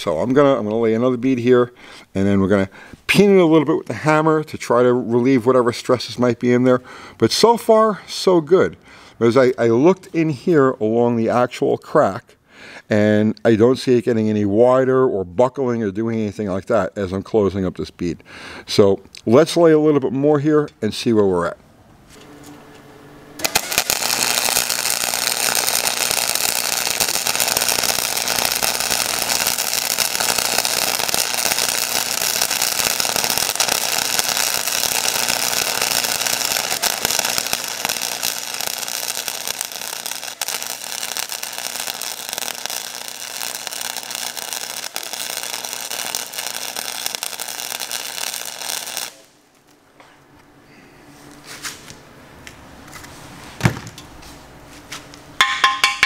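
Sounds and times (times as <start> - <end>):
welding arc crackling: 0.0 - 1.5, 23.4 - 49.6.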